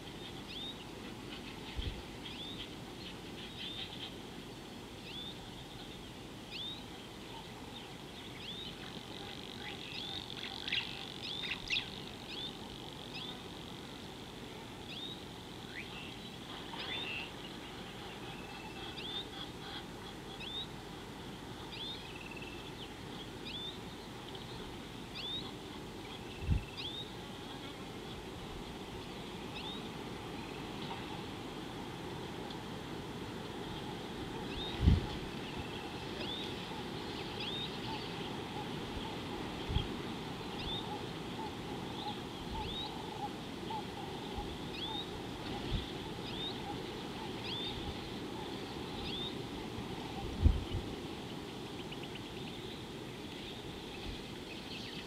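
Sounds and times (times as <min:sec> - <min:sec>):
steady low background noise: 0:00.0 - 0:55.0
birds chirping: 0:33.4 - 0:55.0.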